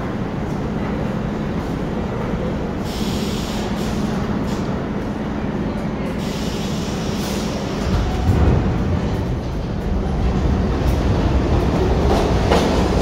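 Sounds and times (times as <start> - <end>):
subway train humming: 0.0 - 13.0
train hissing bursts: 2.8 - 4.2, 6.2 - 7.8.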